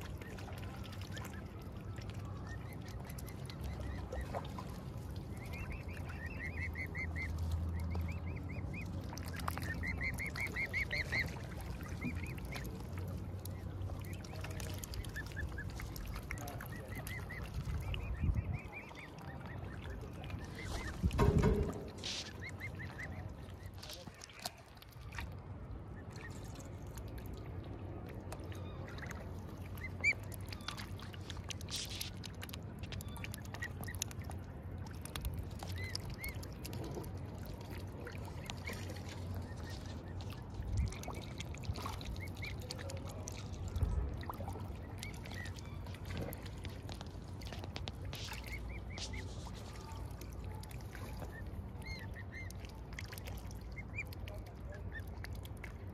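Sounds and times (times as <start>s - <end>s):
steady low rumble: 0.0s - 55.9s
baby birds peeping: 9.6s - 12.7s.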